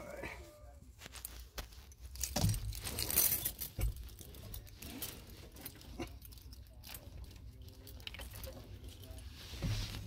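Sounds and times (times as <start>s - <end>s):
keys jangling: 2.0s - 9.3s.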